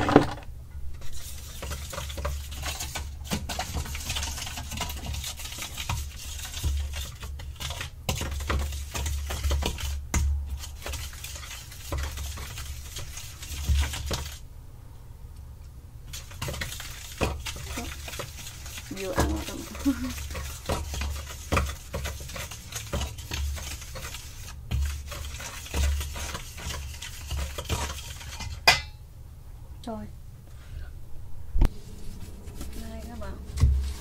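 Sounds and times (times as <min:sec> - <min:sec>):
spoon scraping steel bowl: 0:01.0 - 0:14.4, 0:16.1 - 0:28.8
low rumble: 0:30.9 - 0:34.0.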